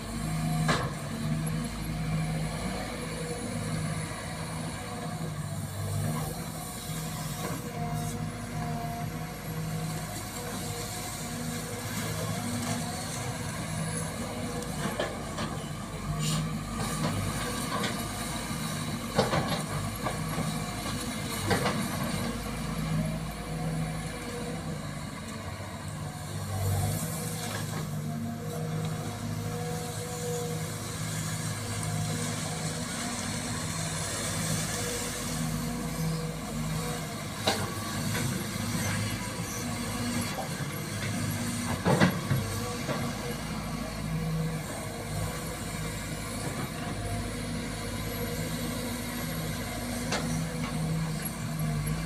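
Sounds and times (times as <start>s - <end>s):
excavator diesel engine running: 0.0s - 52.0s.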